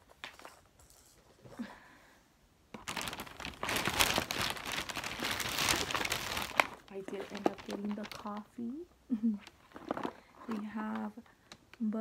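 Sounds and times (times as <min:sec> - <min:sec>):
plastic bag rustling: 0:02.7 - 0:11.2.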